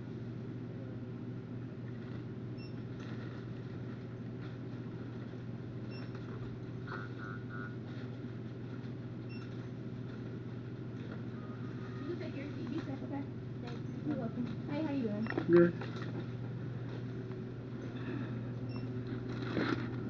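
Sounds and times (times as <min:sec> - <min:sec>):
low electrical hum: 0:00.0 - 0:20.0.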